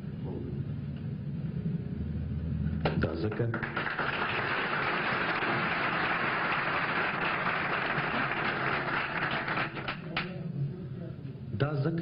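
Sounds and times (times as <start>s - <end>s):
audience applauding: 3.2s - 10.3s.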